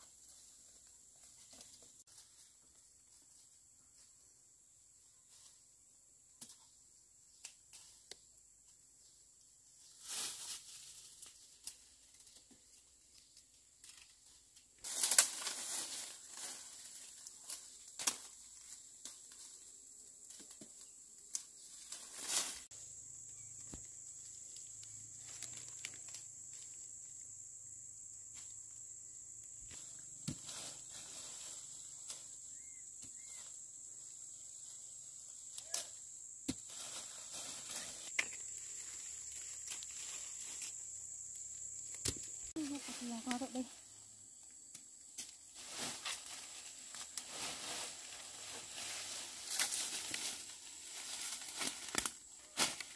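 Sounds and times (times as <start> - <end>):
leaves rustling: 9.0 - 22.8, 23.4 - 27.1, 29.7 - 52.9
twigs snapping: 14.9 - 15.6, 51.0 - 52.9.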